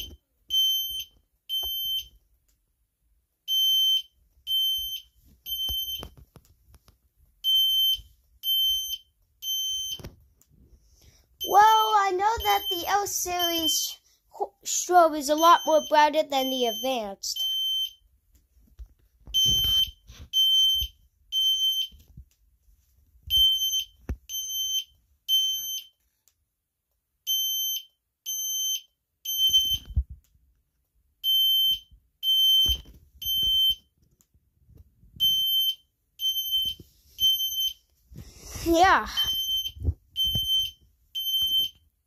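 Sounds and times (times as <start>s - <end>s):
fire alarm high-pitched beeps: 0.0s - 2.2s, 3.5s - 6.2s, 7.4s - 10.1s, 11.4s - 14.0s, 15.4s - 18.0s, 19.3s - 22.0s, 23.3s - 26.0s, 27.2s - 30.0s, 31.2s - 33.9s, 35.2s - 37.8s, 39.1s - 41.8s.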